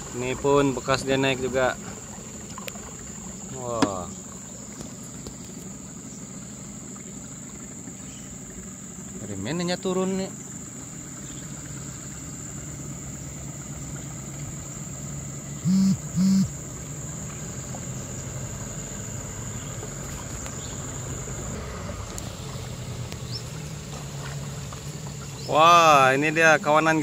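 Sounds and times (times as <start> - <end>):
boat motor humming: 0.0 - 27.0
insects trilling: 0.0 - 27.0
short low hoots: 15.6 - 16.6.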